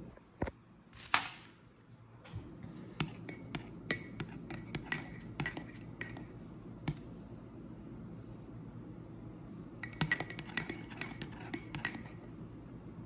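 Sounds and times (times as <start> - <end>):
spoon scrape: 2.9 - 7.1, 9.8 - 12.3
teaspoon clinking against mug: 3.0 - 6.3, 9.8 - 12.2.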